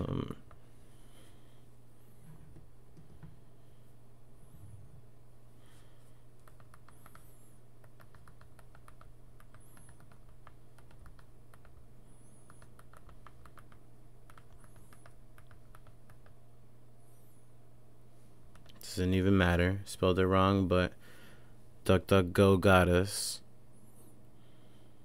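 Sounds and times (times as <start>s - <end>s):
faint low hum: 0.0s - 25.0s
computer keyboard typing: 6.4s - 11.8s, 12.4s - 16.4s.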